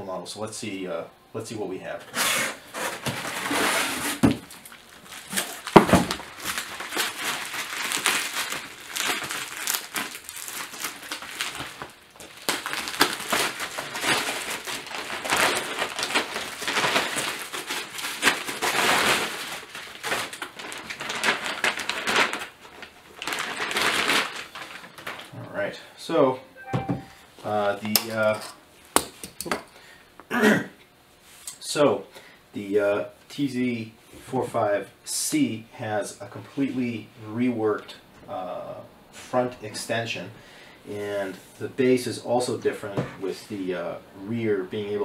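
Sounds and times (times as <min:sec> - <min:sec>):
bubble wrap crinkling: 0:02.7 - 0:25.4.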